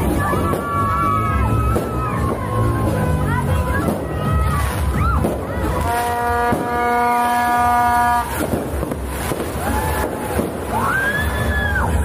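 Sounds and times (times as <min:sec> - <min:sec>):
crowd noise in the street: 0:00.0 - 0:12.0
horn toot: 0:05.6 - 0:09.2
rising and falling whoops: 0:09.5 - 0:12.0.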